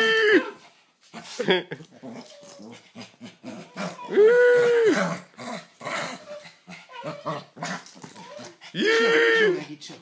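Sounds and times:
small dog play-growling: 1.9s - 4.1s, 5.0s - 8.7s
dog whining: 2.0s - 2.8s, 3.5s - 5.2s, 6.1s - 9.2s.

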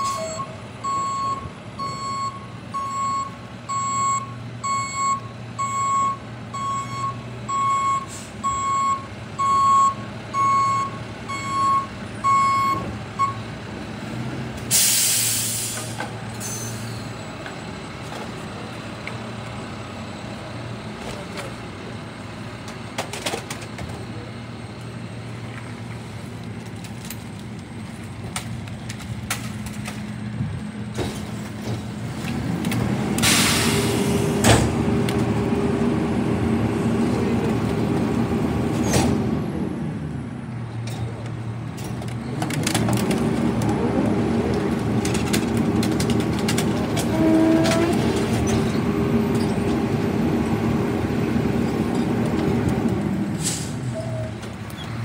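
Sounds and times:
truck reversing alarm beeping: 0.0s - 13.6s
air brakes hissing: 8.0s - 8.5s, 14.7s - 17.2s, 33.2s - 34.7s, 53.3s - 54.3s.

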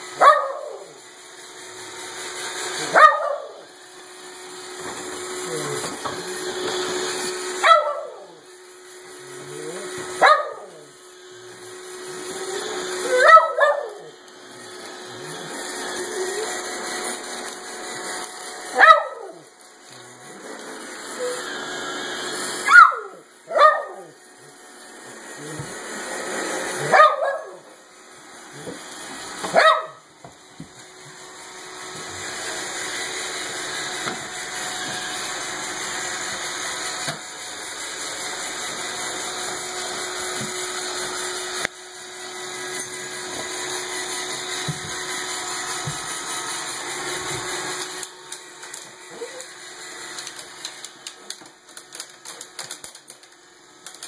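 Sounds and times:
robot vacuum whirring: 0.0s - 54.0s
small dog barking: 0.2s - 0.9s, 2.8s - 3.6s, 7.6s - 8.3s, 10.2s - 10.8s, 13.1s - 14.1s, 18.7s - 19.4s, 22.6s - 24.1s, 26.8s - 27.6s, 29.5s - 30.0s.

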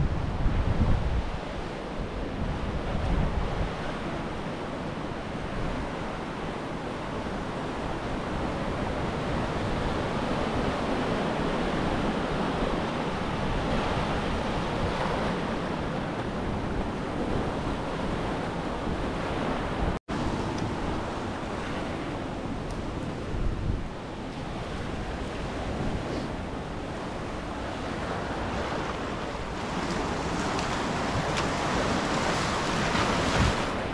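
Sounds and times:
waves washing on sandy beach: 0.0s - 33.9s
wind rumbling on microphone: 0.0s - 33.9s.

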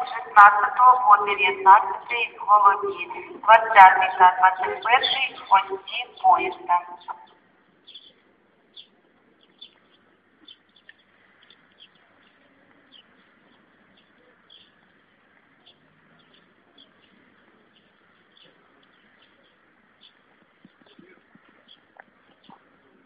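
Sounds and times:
small birds chirping: 4.0s - 14.9s, 15.6s - 23.0s.

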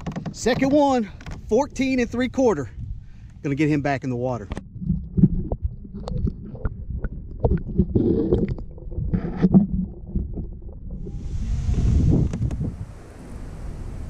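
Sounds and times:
knocks and thumps in a kayak: 0.0s - 2.4s, 4.4s - 11.1s, 12.1s - 12.7s
wind on microphone: 1.6s - 3.2s, 4.6s - 14.0s.

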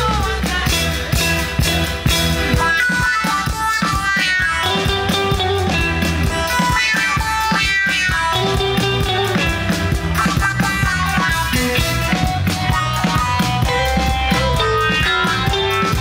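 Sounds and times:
band playing dance music: 0.0s - 16.0s
steady drum beat: 0.0s - 16.0s.

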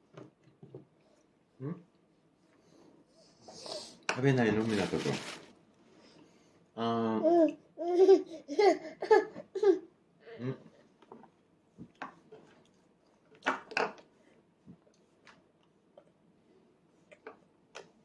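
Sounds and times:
toddler babbling and giggling: 7.2s - 9.9s
soft clicks and mouth smacks: 17.1s - 18.0s.

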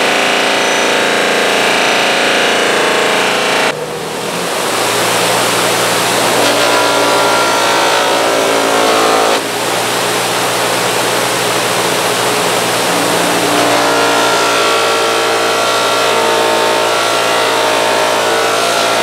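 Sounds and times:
bench buffer humming: 0.0s - 19.0s
rubbing whine on buffing wheel: 4.5s - 19.0s.

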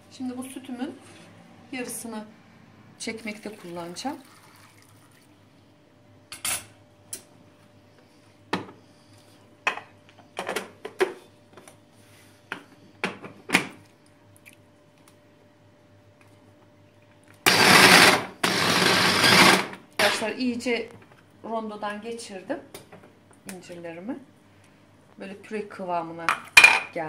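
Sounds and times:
electric chopper grinding: 17.5s - 20.2s.

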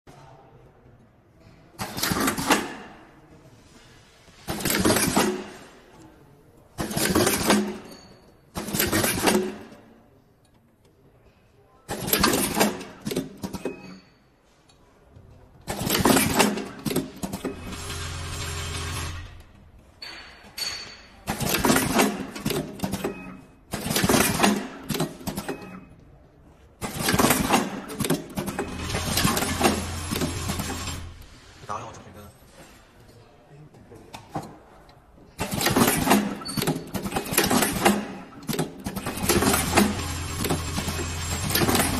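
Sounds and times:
mechanical clatter: 4.5s - 5.7s, 6.8s - 9.8s, 15.6s - 25.7s, 26.8s - 31.3s, 35.4s - 41.9s.

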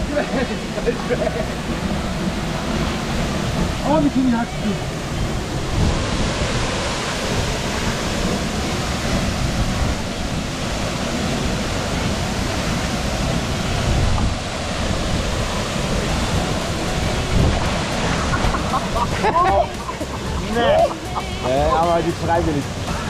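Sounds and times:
waterfall rushing: 0.0s - 23.0s.

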